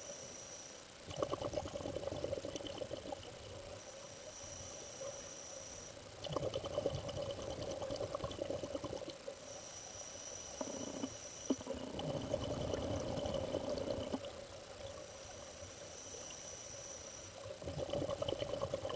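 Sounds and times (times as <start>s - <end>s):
quiet inhalations: 0.0s - 18.9s
bubbling exhalation: 1.1s - 3.3s, 6.2s - 9.2s, 10.8s - 14.3s, 17.6s - 18.9s.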